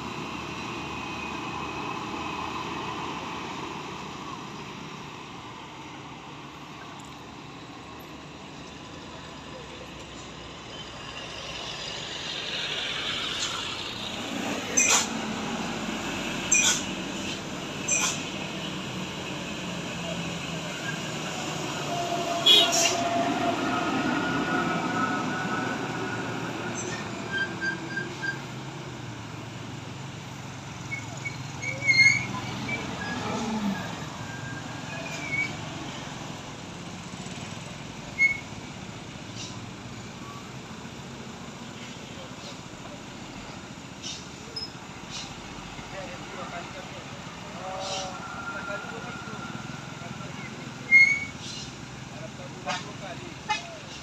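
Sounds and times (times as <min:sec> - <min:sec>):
truck engine rumble: 0:00.0 - 0:54.0
high-pitched squeals: 0:47.3 - 0:51.7.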